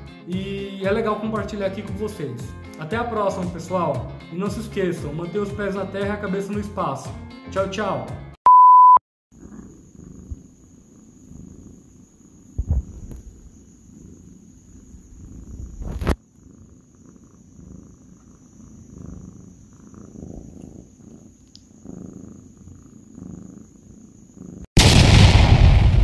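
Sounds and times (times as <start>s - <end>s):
cat purring: 9.3s - 24.8s
sudden loud boom: 24.8s - 26.0s.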